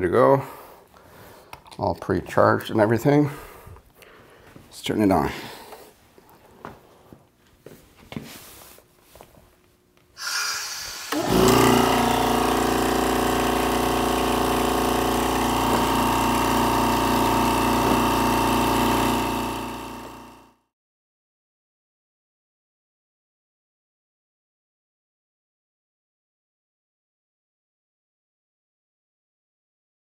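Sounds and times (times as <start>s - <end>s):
electric vacuum pump humming: 10.1s - 20.7s.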